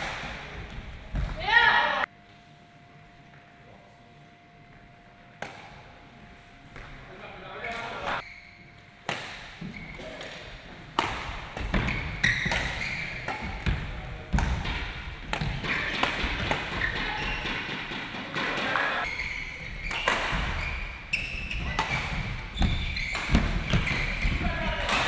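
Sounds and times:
racket striking shuttlecock: 9.0 - 10.3, 10.9 - 19.0, 19.8 - 20.6.

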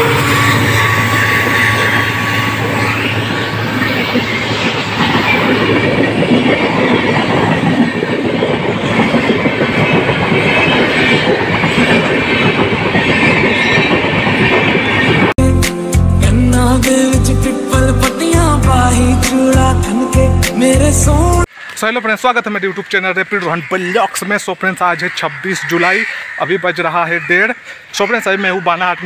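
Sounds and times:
train wheels clattering: 0.0 - 15.3
low train hum: 0.0 - 21.5.

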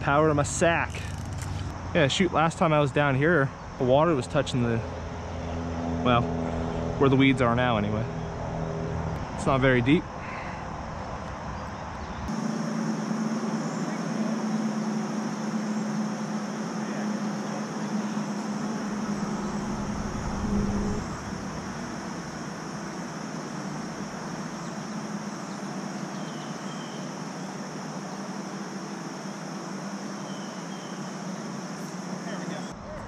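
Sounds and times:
low mechanical hum: 11.8 - 33.0
deep rumble: 18.7 - 22.9.

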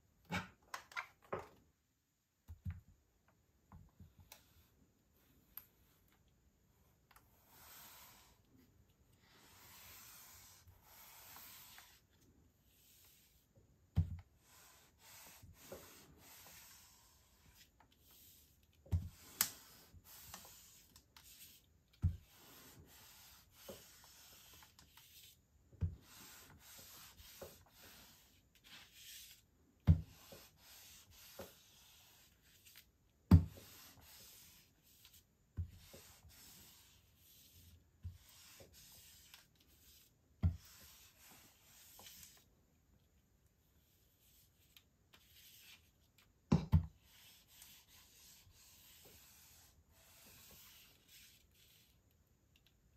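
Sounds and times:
iron rubbing over plastic sheet: 14.4 - 32.8, 47.0 - 52.0.

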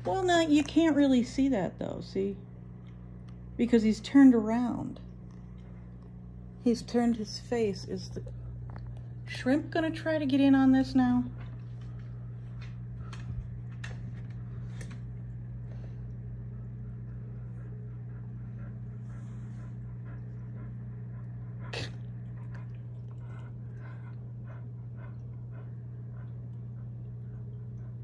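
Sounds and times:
steady low hum: 0.0 - 28.0
dog panting: 16.9 - 28.0.

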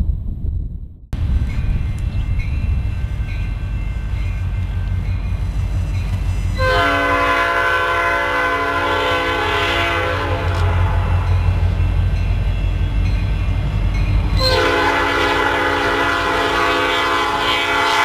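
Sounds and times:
train rumble: 0.0 - 18.0
locomotive air horn blast: 6.4 - 11.4, 14.4 - 18.0.

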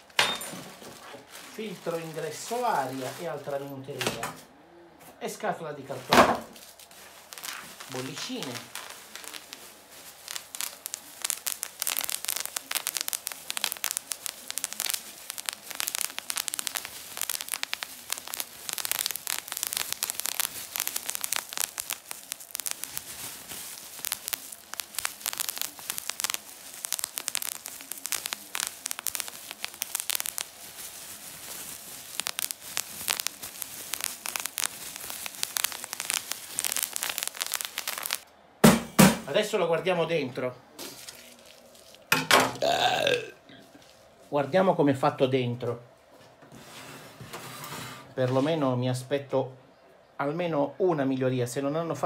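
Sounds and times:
bubble wrap popping: 0.0 - 4.1, 5.9 - 39.3, 40.8 - 44.2
plastic crinkling: 0.0 - 4.4, 5.9 - 38.5, 40.7 - 44.4.

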